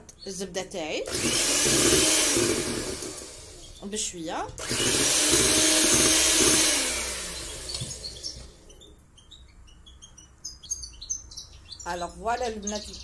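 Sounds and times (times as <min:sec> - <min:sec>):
small birds chirping: 0:00.0 - 0:01.0, 0:03.4 - 0:04.6, 0:07.0 - 0:13.0
electric hand mixer whisking: 0:01.1 - 0:03.8, 0:04.5 - 0:08.4
mixer motor winding down: 0:01.1 - 0:03.8, 0:04.5 - 0:08.7.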